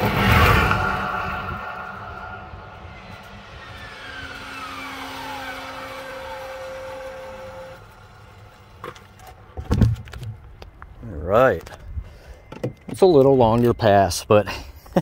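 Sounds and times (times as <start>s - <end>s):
vehicle whine going away: 0.0s - 9.4s.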